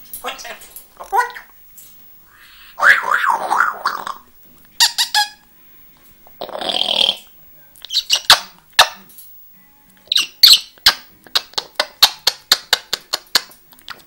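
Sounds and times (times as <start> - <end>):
parrot squawking and clicking: 4.8 - 5.4, 7.8 - 9.0, 10.1 - 14.0.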